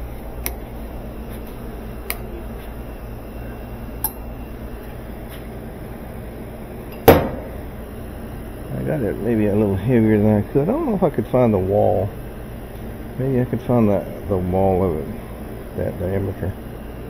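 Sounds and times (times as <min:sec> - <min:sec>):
steady low hum: 0:00.0 - 0:17.0
sharp knock: 0:07.1 - 0:07.6.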